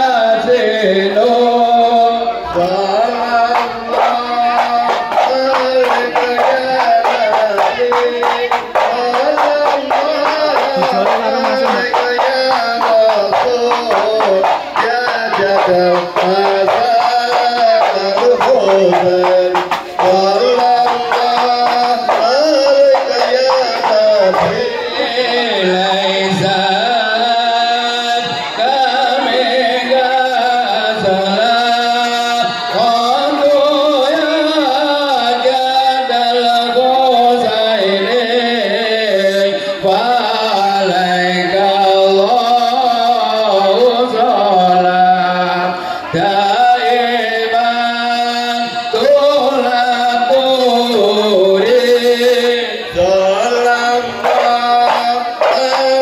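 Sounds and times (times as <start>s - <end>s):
person singing wavering melody: 1.0s - 35.5s.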